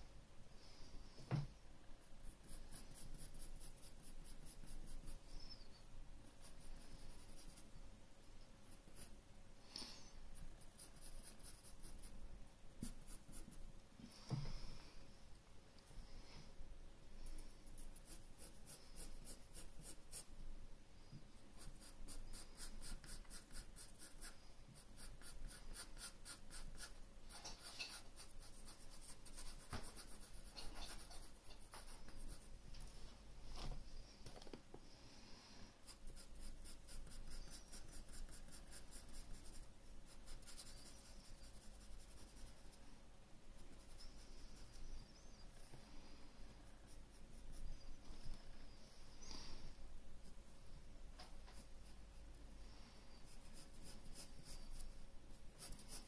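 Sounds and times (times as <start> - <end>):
pencil scratching on paper: 2.0 - 5.3, 6.3 - 7.7, 8.7 - 9.2, 10.4 - 12.2, 12.8 - 13.6, 17.7 - 20.3, 21.6 - 32.5, 35.8 - 42.8, 43.6 - 44.9, 46.8 - 47.9, 53.2 - 54.9, 55.6 - 56.0.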